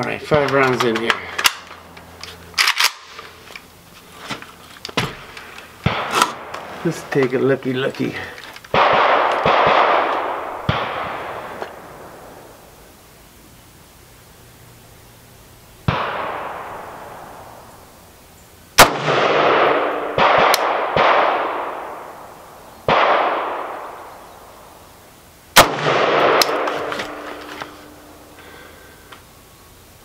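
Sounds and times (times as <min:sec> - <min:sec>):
faint distant gunshots: 0:05.8 - 0:06.6, 0:08.7 - 0:12.4, 0:15.9 - 0:17.6, 0:18.8 - 0:22.1, 0:22.9 - 0:24.0, 0:25.6 - 0:27.4
rifle shots echoing: 0:05.8 - 0:06.7, 0:08.7 - 0:12.5, 0:15.9 - 0:17.8, 0:18.8 - 0:22.3, 0:22.9 - 0:24.2, 0:25.6 - 0:28.4.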